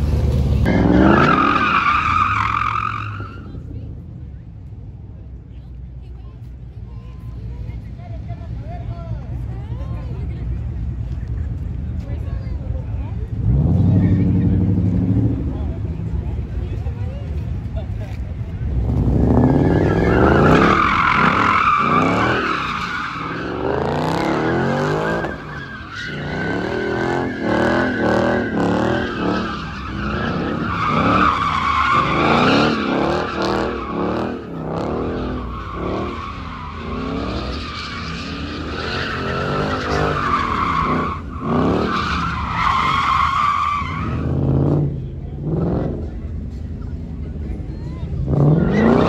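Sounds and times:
tyres squealing: 0.7s - 3.5s, 19.2s - 44.4s
car engine revving: 18.4s - 46.5s.

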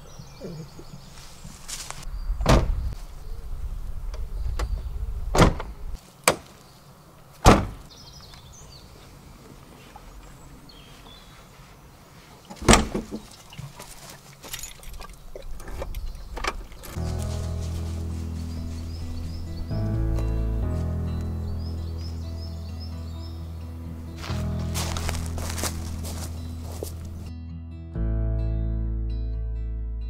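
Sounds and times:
car doors clunking shut: 2.4s - 2.8s, 5.3s - 6.4s, 7.4s - 7.9s, 12.6s - 13.2s
music: 17.0s - 30.0s.

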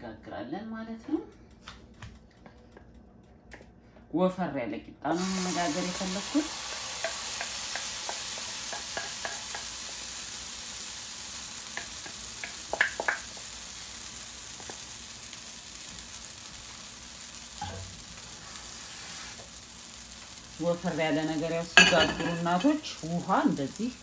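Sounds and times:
batter sizzling in hot oil: 5.1s - 24.0s.

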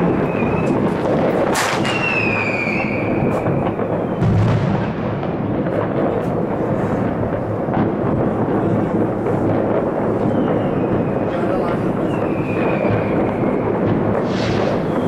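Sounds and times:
whistling rocket falling in pitch: 0.0s - 6.2s, 9.9s - 15.0s
fireworks crackling and banging: 0.0s - 15.0s
loud sharp bang: 1.4s - 8.8s, 12.0s - 15.0s.

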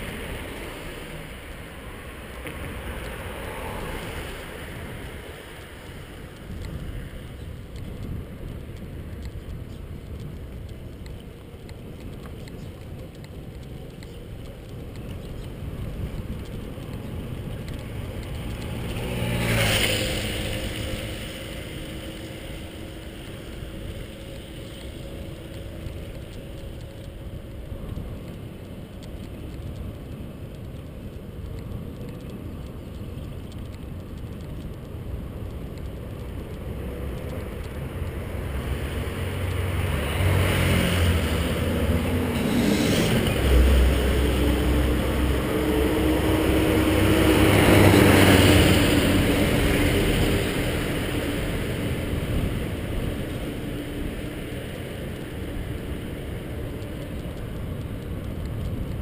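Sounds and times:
road rumble: 0.0s - 59.0s
wind: 0.0s - 59.0s
motorcycle passing: 14.6s - 28.1s, 36.7s - 58.7s.

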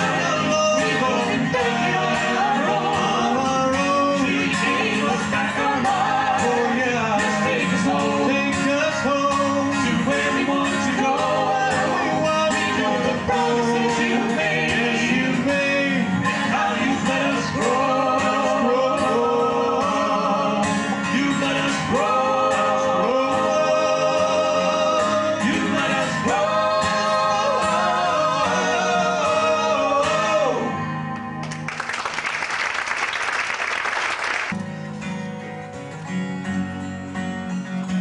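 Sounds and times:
vocal group singing harmony: 0.0s - 31.1s
acoustic guitar strumming: 0.0s - 31.7s, 34.5s - 38.0s
acoustic guitar: 0.0s - 38.0s
applause: 31.4s - 34.6s.

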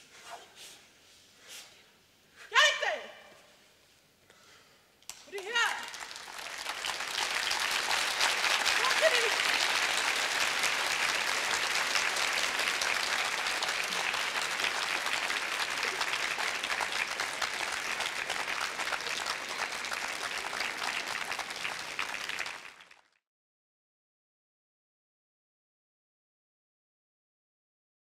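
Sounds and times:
audience applauding: 5.2s - 23.2s.

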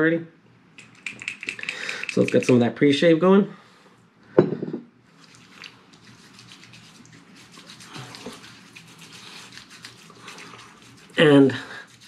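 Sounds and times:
hands rubbing wet face: 0.8s - 2.6s, 5.2s - 12.0s.

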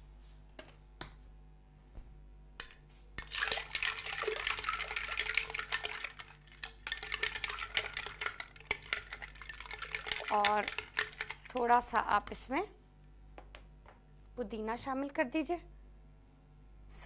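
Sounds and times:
ice cubes clinking in glass pitcher: 3.2s - 12.0s.

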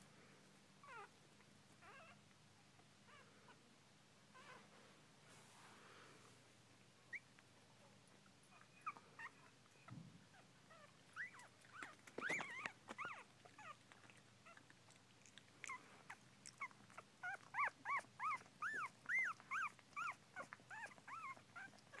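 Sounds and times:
puppies squeaking and whimpering: 1.8s - 2.2s, 8.5s - 14.7s, 15.6s - 22.0s.

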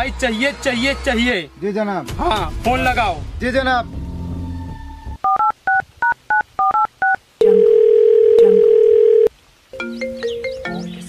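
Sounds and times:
touch-tone keypad beeps: 5.2s - 7.8s.

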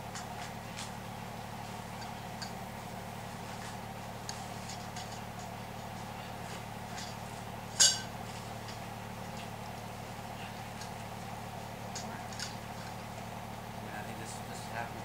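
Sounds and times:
light clicks and taps of poles: 0.0s - 13.3s
steady low hum: 0.0s - 15.0s
sharp ringing clink: 7.8s - 8.1s.

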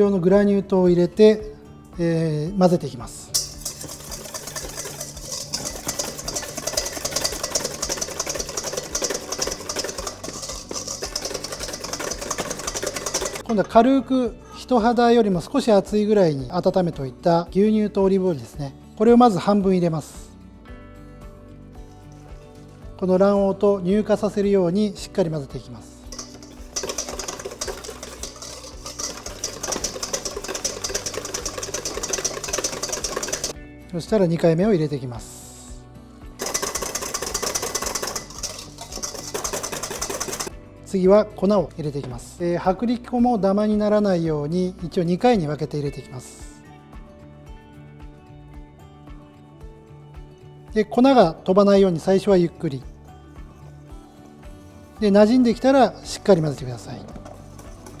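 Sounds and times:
whisk beating in metal bowl: 3.4s - 13.5s, 26.1s - 33.6s, 36.4s - 40.5s, 57.1s - 58.0s.

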